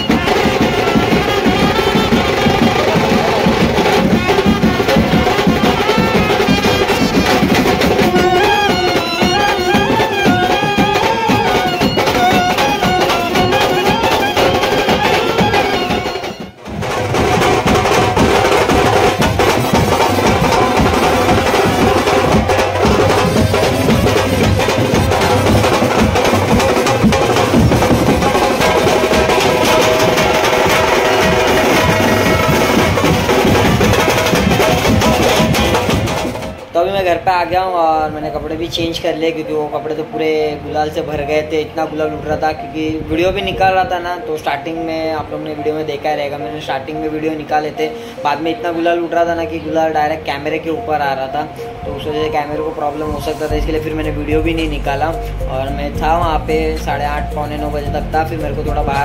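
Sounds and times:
drums and percussion: 0.0s - 37.6s, 50.3s - 59.0s
traditional melody: 0.0s - 59.0s.

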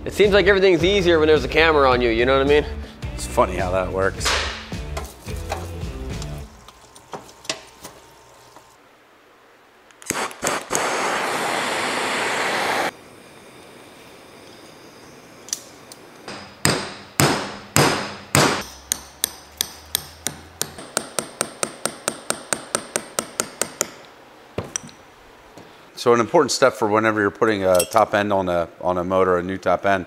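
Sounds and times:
hammer striking a metal punch: 4.2s - 4.7s, 16.3s - 24.0s.

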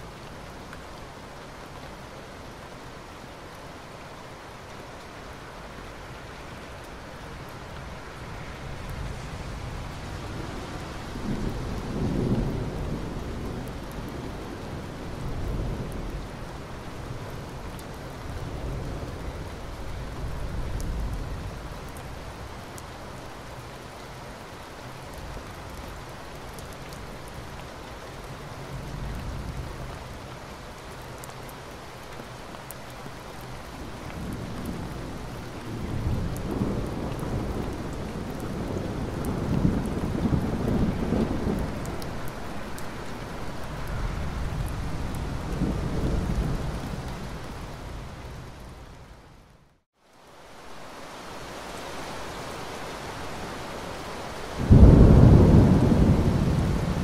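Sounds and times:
steady rain: 0.0s - 57.0s
low rolling thunder: 9.0s - 16.1s, 33.9s - 42.3s, 54.6s - 57.0s.

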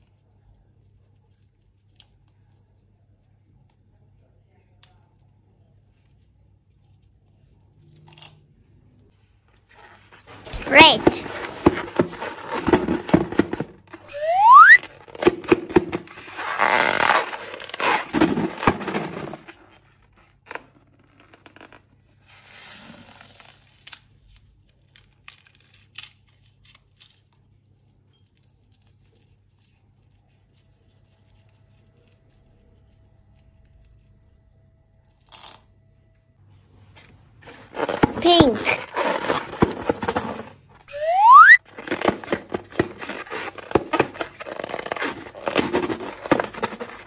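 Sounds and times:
balloon squeak: 14.0s - 15.0s, 40.9s - 41.8s.

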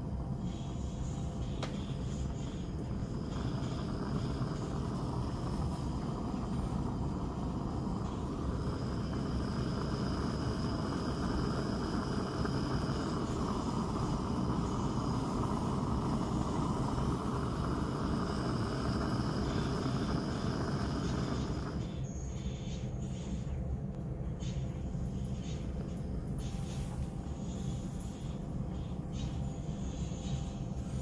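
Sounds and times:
gas burner rushing: 0.0s - 23.6s.

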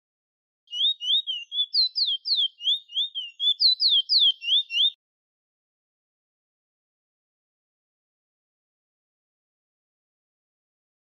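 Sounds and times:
finch singing whistled slurs: 0.7s - 5.0s.

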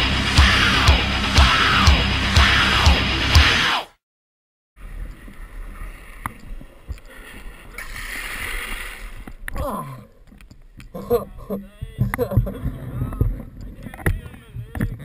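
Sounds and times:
music: 0.0s - 3.8s.

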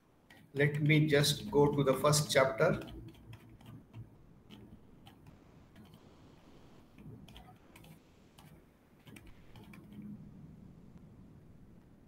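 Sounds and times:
faint computer clicks: 0.2s - 6.1s, 6.9s - 10.2s.

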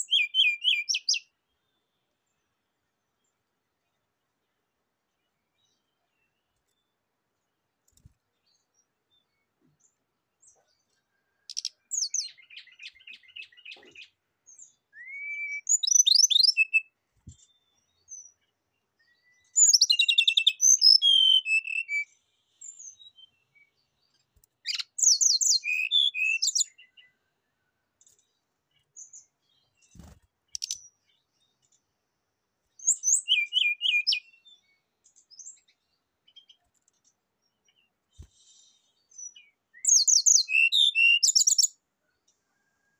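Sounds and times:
bird singing trills and whistles: 0.0s - 1.3s, 11.5s - 18.4s, 19.0s - 23.7s, 24.6s - 27.1s, 29.0s - 31.2s, 32.8s - 35.7s, 38.2s - 41.8s.

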